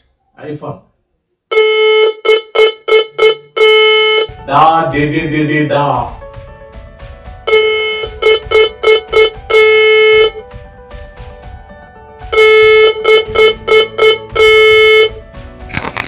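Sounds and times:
morse code buzzy tone: 1.5s - 4.4s, 7.5s - 10.4s, 12.3s - 15.2s.

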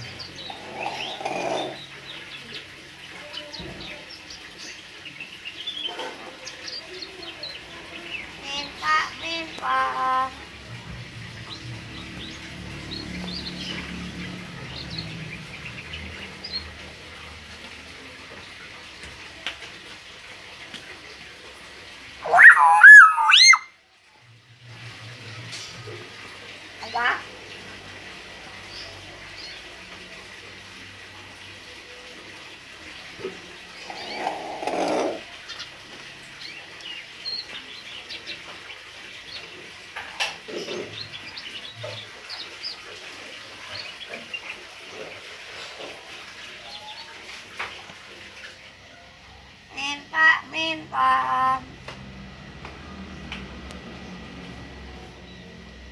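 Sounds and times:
myna chirping and whistling: 22.2s - 23.7s.

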